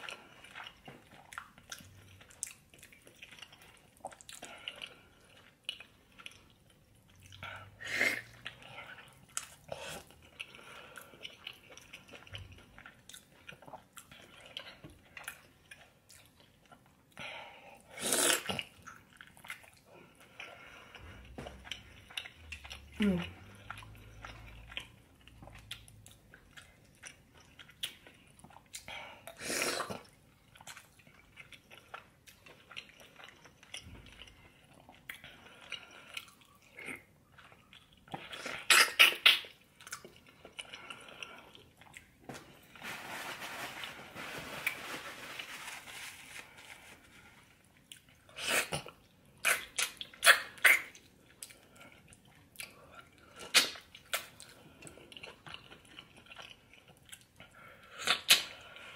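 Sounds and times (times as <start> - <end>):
person chewing: 0.0 - 17.2, 17.8 - 42.8, 44.6 - 58.9
loud mouth smacks and clicks: 38.7 - 39.5.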